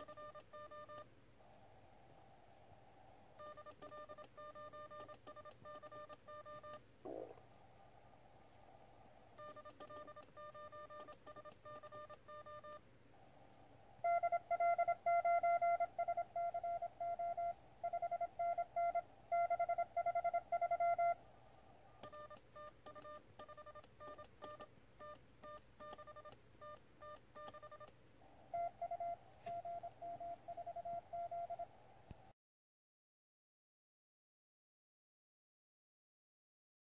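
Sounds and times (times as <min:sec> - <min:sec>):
morse code beeps: 0:00.0 - 0:01.0, 0:03.4 - 0:07.3, 0:09.4 - 0:12.8, 0:14.0 - 0:21.2, 0:22.0 - 0:27.9, 0:28.5 - 0:31.7.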